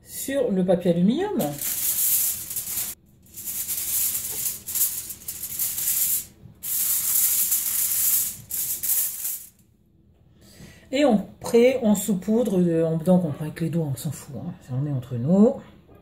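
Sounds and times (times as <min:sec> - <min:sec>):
aluminium foil crinkling: 0:01.3 - 0:09.6.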